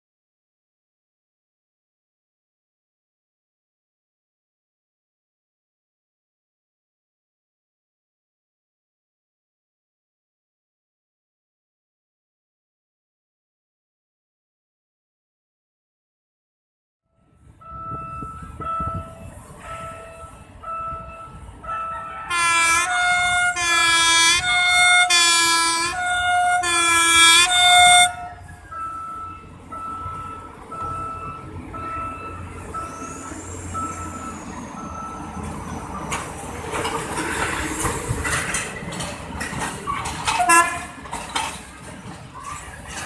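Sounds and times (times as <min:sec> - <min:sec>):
rail car rumble and rail clatter: 0:17.1 - 0:43.0
train horn short blasts: 0:21.7 - 0:28.5, 0:40.3 - 0:41.0
short electronic beep: 0:28.5 - 0:35.4.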